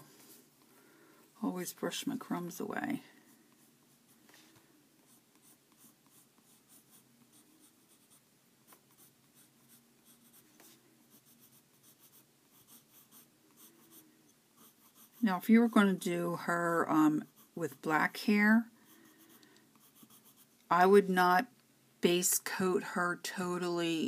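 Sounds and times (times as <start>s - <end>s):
colored pencil scratching on paper: 1.8s - 21.0s.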